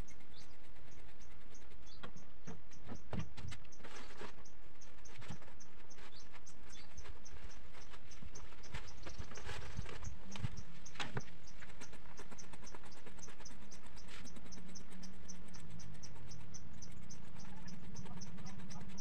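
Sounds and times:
soft rustles: 0.0 - 14.4
steady low hum: 0.0 - 19.0.

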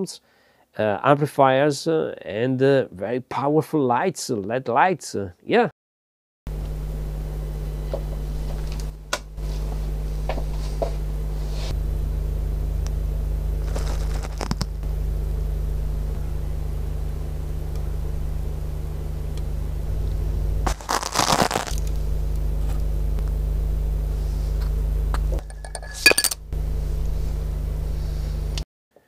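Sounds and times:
buzzing mains hum: 6.5 - 28.6.

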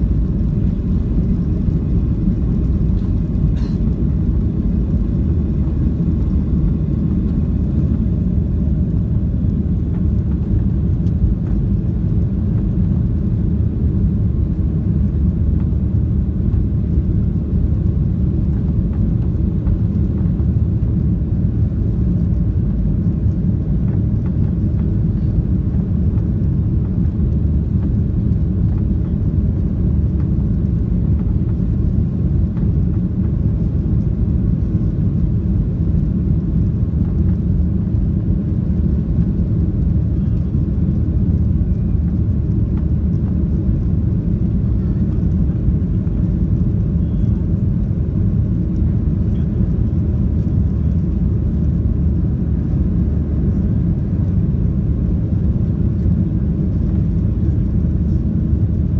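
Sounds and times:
jet engines rumbling in cabin: 0.0 - 58.9.

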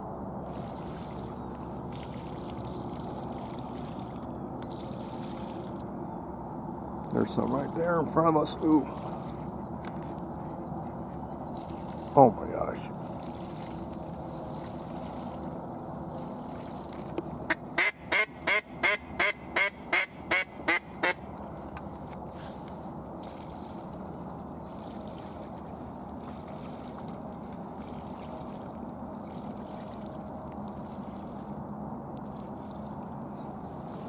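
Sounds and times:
loud duck quacks: 17.5 - 21.2.

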